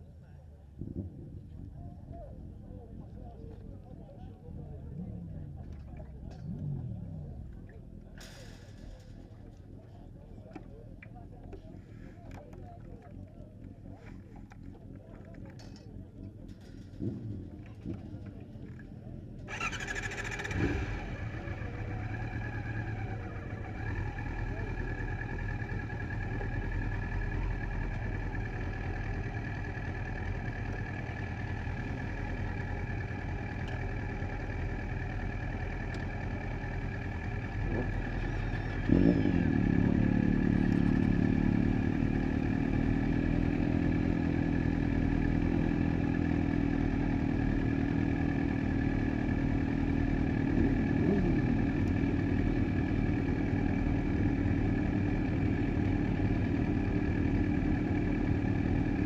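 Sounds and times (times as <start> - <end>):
motorcycle engines idling: 1.4 - 59.0
motorcycle engine starting and revving: 16.5 - 59.0.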